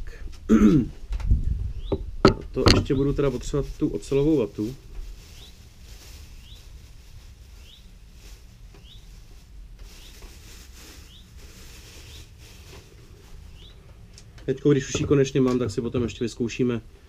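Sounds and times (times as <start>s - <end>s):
plastic bag crinkling: 3.2s - 13.6s.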